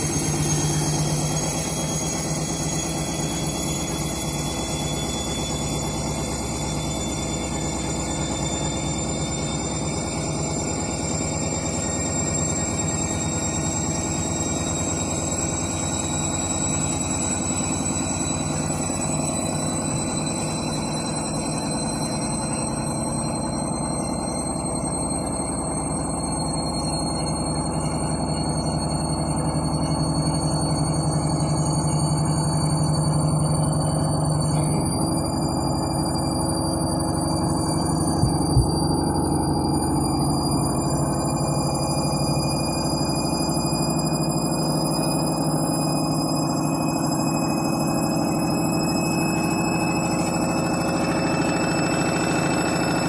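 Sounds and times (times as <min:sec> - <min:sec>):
washing machine motor whine: 0:00.0 - 0:53.0
low hum: 0:18.3 - 0:45.1.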